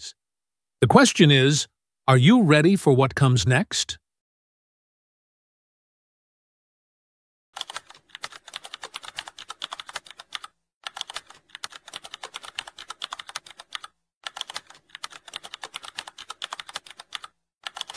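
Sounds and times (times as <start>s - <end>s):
computer keyboard typing: 7.6s - 17.9s.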